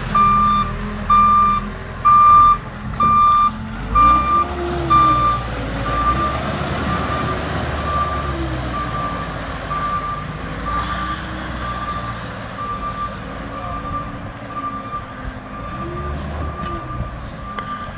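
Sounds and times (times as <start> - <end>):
engine revving: 0.0 - 13.8
reversing alarm beeping: 0.2 - 17.9.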